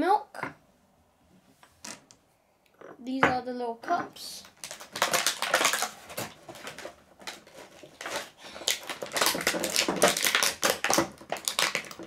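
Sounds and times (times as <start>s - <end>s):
plastic packaging crinkling: 4.4s - 12.0s.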